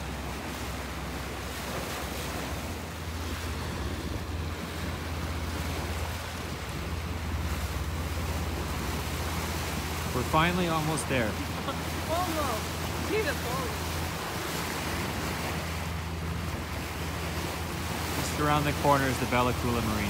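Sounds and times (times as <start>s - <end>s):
wind buffeting microphone: 0.0s - 10.1s
low rumble: 0.0s - 18.1s
water washing past hull: 0.0s - 20.0s.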